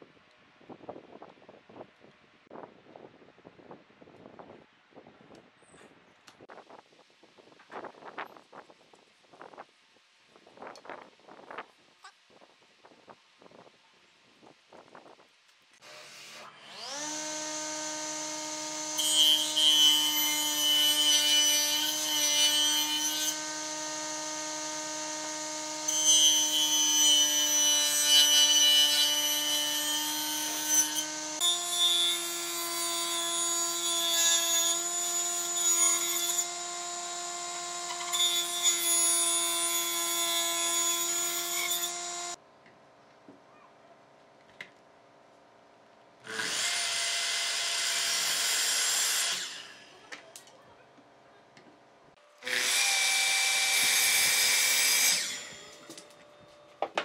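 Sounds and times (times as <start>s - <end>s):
power tool whining on wood: 15.8s - 42.4s, 46.2s - 50.0s, 52.2s - 57.0s.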